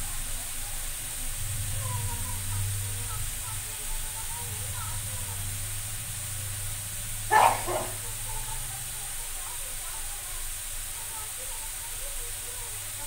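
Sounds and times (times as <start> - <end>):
dog bark: 7.2 - 8.2.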